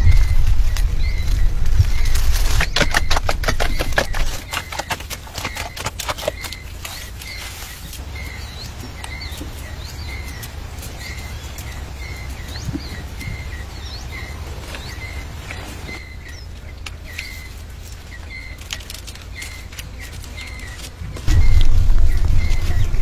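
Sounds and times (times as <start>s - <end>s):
low rumble: 0.0s - 4.4s, 20.6s - 23.0s
bird chirping: 0.0s - 23.0s
leaves and twigs rustling: 0.0s - 23.0s.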